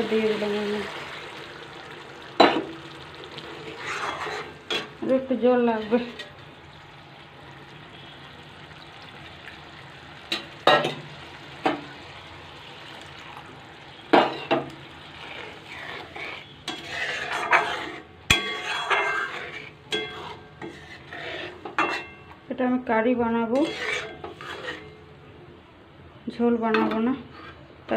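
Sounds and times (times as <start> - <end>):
low sizzle: 0.0 - 27.9
metal spatula scraping metal pan: 3.6 - 5.0, 15.1 - 22.2, 23.6 - 25.0.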